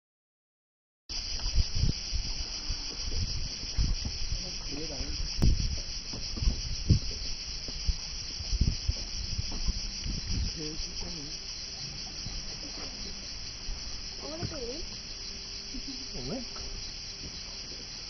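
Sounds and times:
cicadas buzzing: 0:01.1 - 0:18.0
low knocks and rumbles: 0:01.3 - 0:15.2.

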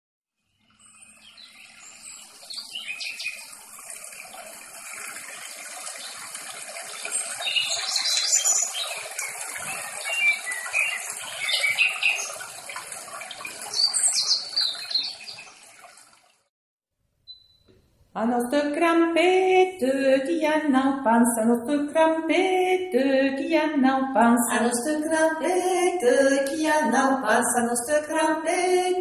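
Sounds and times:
running water: 0:00.6 - 0:16.5, 0:24.2 - 0:29.0
birds chirping: 0:00.7 - 0:04.4, 0:05.4 - 0:15.9.

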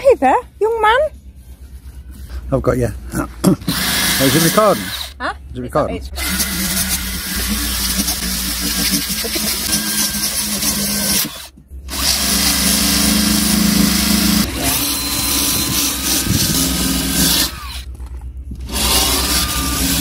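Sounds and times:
drill wire brush grinding metal: 0:03.6 - 0:05.1, 0:06.2 - 0:17.9, 0:18.7 - 0:20.0.

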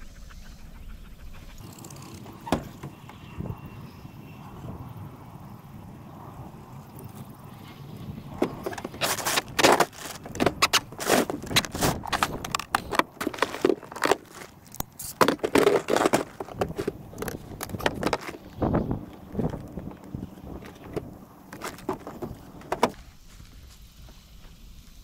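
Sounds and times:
close rustling and crackling: 0:08.2 - 0:24.2
sharp knocks and scrapes: 0:08.4 - 0:18.8, 0:20.6 - 0:23.0.

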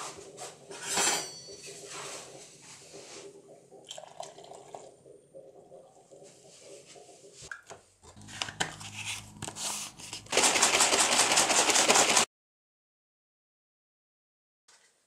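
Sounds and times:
shaker bottle shaken hard: 0:08.7 - 0:12.3.

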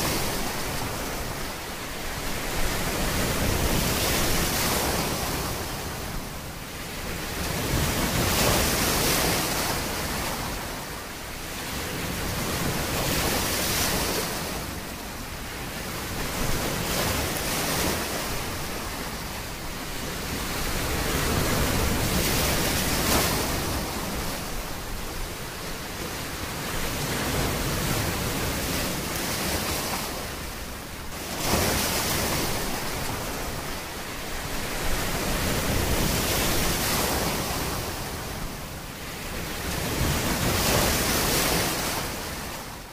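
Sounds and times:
ocean surf washing: 0:00.0 - 0:42.9.

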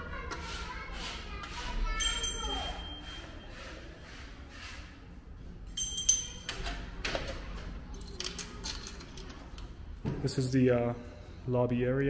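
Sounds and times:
metal gate clinking: 0:05.7 - 0:07.0.

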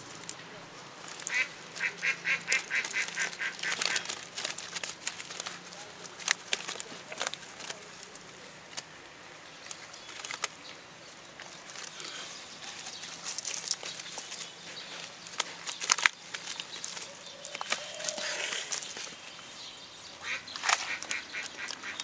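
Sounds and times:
net rustling: 0:00.0 - 0:22.0
fish flapping and slapping: 0:01.0 - 0:07.7.

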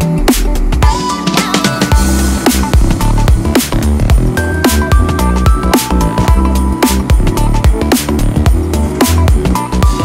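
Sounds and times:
music with heavy bass: 0:00.0 - 0:10.0
steady drum beat: 0:00.0 - 0:10.0.

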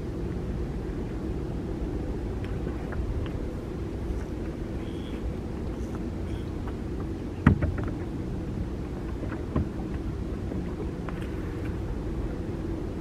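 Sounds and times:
steady low hum: 0:00.0 - 0:13.0
knocks of gear on a boat: 0:06.6 - 0:08.2, 0:08.9 - 0:10.1.

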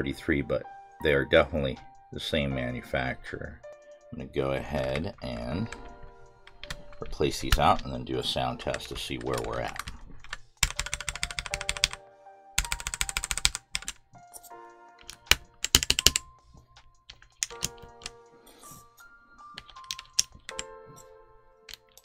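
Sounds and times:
background music: 0:00.0 - 0:22.0
mechanical keyboard keys clattering: 0:04.8 - 0:12.0, 0:12.6 - 0:14.0, 0:15.0 - 0:18.2, 0:19.4 - 0:20.8, 0:21.7 - 0:22.0.

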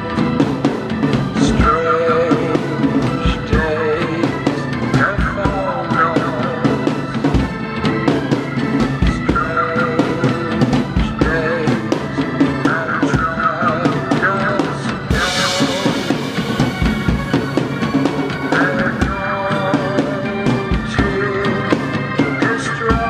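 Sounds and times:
rock song melody: 0:00.0 - 0:23.0
drum kit beat: 0:00.1 - 0:22.0
cymbal crash ringing: 0:15.1 - 0:20.2.

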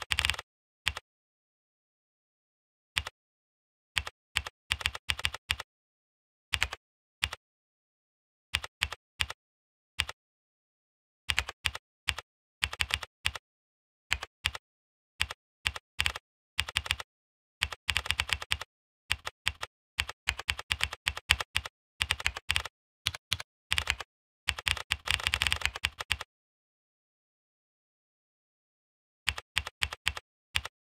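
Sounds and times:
typing on a computer keyboard: 0:00.0 - 0:01.0, 0:04.0 - 0:05.7, 0:06.6 - 0:07.4, 0:08.6 - 0:09.4, 0:11.3 - 0:13.4, 0:14.1 - 0:14.6, 0:15.2 - 0:26.3, 0:29.3 - 0:30.7.

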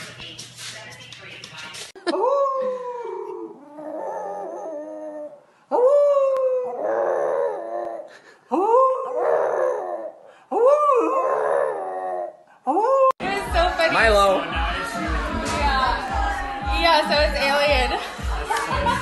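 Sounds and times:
dog howling: 0:02.2 - 0:13.2.

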